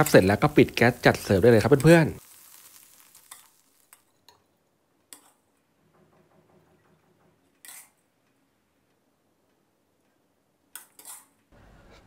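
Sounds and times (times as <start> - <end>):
spatula tossing food in wok: 0.0 - 4.0
light sizzle: 0.0 - 12.0.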